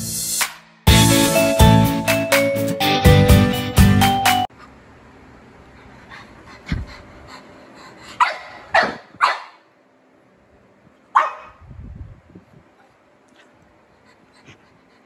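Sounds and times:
dog barking: 8.2 - 9.7, 11.1 - 11.6.

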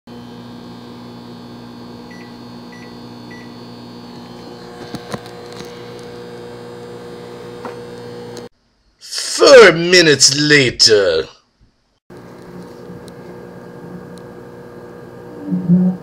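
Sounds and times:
microwave oven humming: 0.1 - 8.5, 12.1 - 16.0.

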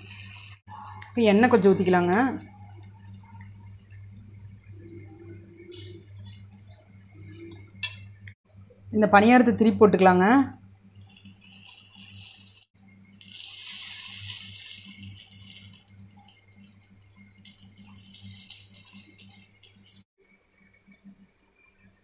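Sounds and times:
oil sizzling in a pan: 0.0 - 8.4, 10.9 - 20.1
low steady hum: 0.0 - 22.0.

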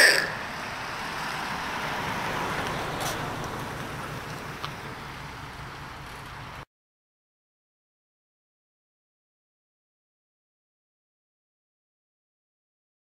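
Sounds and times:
car engine rumble driving past: 0.0 - 6.6
road noise: 0.0 - 6.7.

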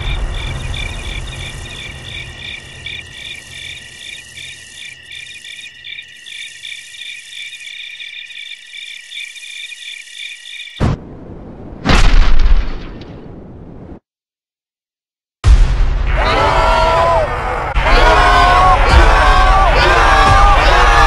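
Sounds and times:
crickets chirping: 0.0 - 10.9.

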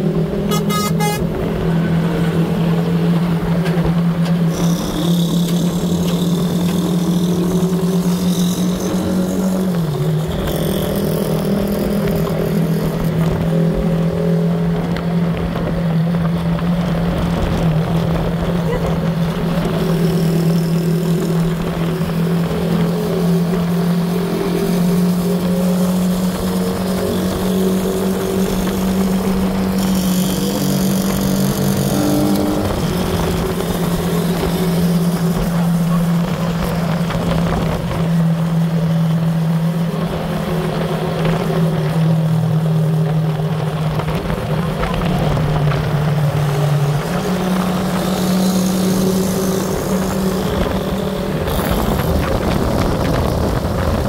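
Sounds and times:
small motorcycle engine cruising: 0.0 - 54.0
wind rushing over microphone: 30.7 - 38.9, 39.8 - 54.0.

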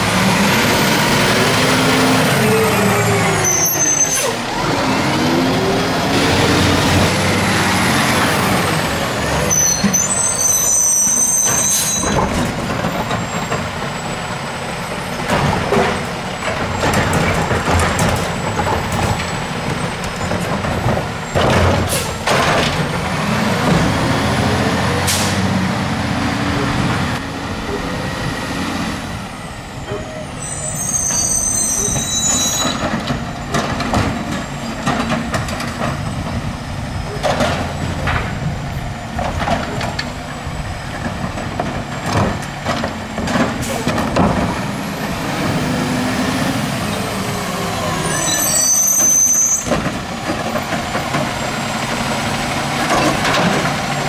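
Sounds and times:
diesel engine revving: 0.0 - 9.5, 20.8 - 30.4, 40.1 - 48.1, 49.6 - 54.0
high squealing: 2.2 - 5.7, 29.9 - 32.9, 47.0 - 49.7.

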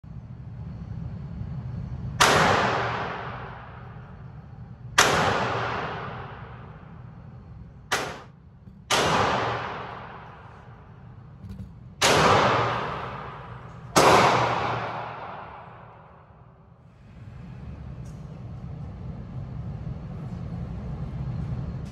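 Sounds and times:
steady low rumble: 0.0 - 21.9
echoing gunshots: 2.2 - 4.4, 5.0 - 7.0, 7.9 - 8.3, 8.9 - 11.3, 12.0 - 16.6.

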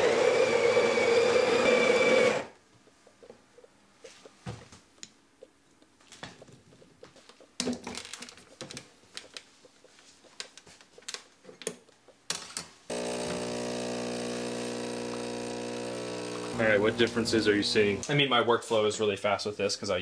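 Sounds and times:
espresso machine pump humming: 0.0 - 2.6, 12.9 - 18.0.

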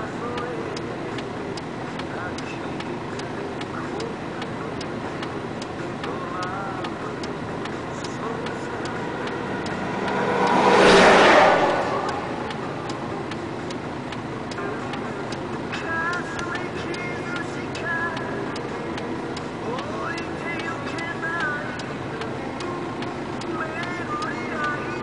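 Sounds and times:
low engine rumble: 0.0 - 25.0
turn signal ticking: 0.0 - 25.0
vehicle passing: 4.0 - 25.0.

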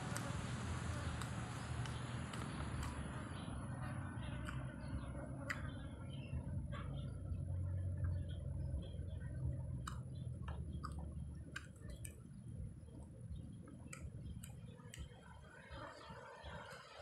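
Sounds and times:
wet mouth clicks and smacks: 1.1 - 3.4, 4.4 - 5.8, 8.8 - 12.4, 13.7 - 15.4
person chewing: 9.8 - 12.1.

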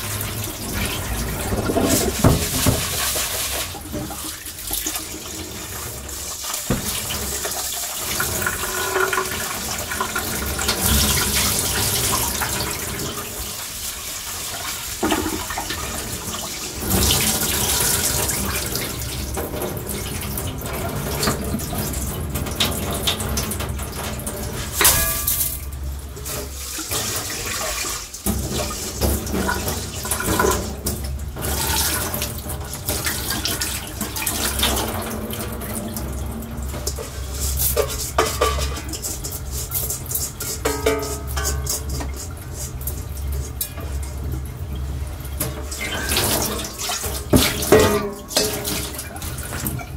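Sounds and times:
tap water splashing into sink: 0.0 - 13.6, 14.5 - 49.9
water poured from pot into sink: 0.0 - 49.9.

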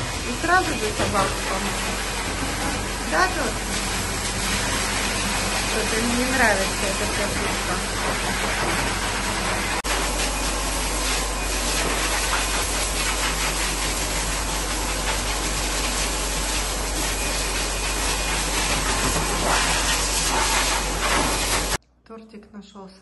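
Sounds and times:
motor hum: 0.0 - 12.0
blow dryer blowing air: 0.0 - 21.8.

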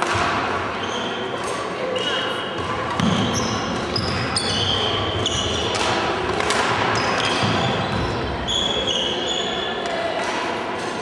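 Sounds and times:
sneakers squeaking on wooden floor: 1.9 - 5.8, 6.8 - 9.7
racket hitting shuttlecock: 5.5 - 7.8.

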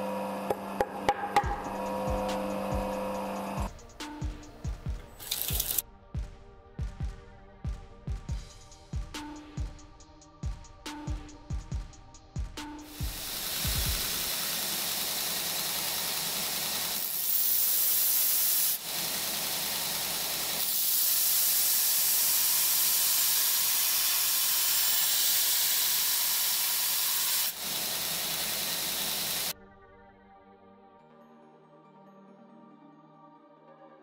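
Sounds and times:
belt grinder grinding steel: 1.4 - 3.7, 5.2 - 5.8, 12.9 - 29.5.

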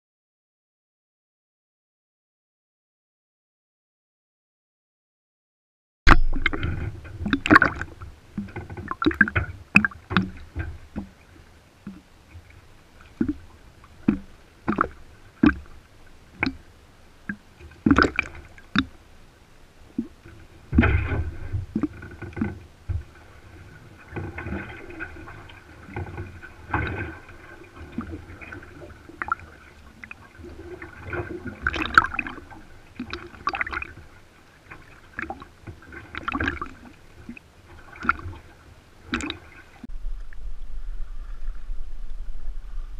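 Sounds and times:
low rumble: 6.1 - 8.6, 39.8 - 42.9
sharp splashes: 6.1 - 10.6, 17.3 - 19.0
water slapping against metal canoe: 6.1 - 19.0, 20.0 - 39.9.

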